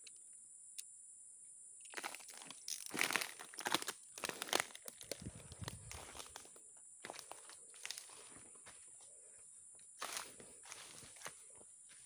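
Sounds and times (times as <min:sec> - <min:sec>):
dry leaves crackling and rustling: 0:02.0 - 0:06.5.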